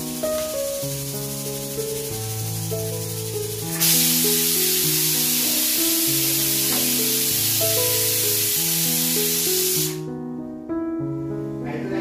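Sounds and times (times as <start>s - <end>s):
gas stove cooking hiss: 0.0s - 10.1s
background music: 0.0s - 12.0s.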